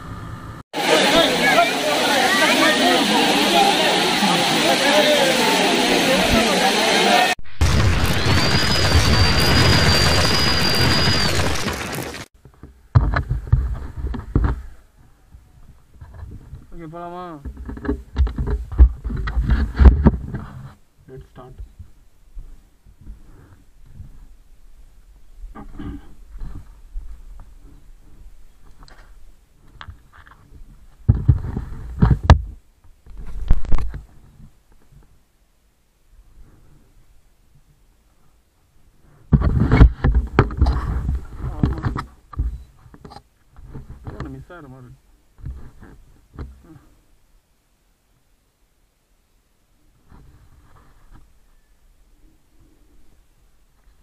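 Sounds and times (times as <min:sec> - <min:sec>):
steady high whistle: 0:08.0 - 0:11.7.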